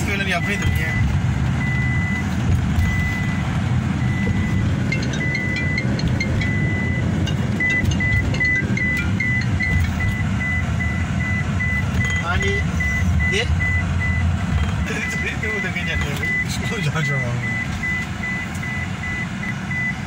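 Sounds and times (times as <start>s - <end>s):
electronic warning beeps: 0.0s - 20.0s
vehicle road and engine rumble: 0.0s - 20.0s.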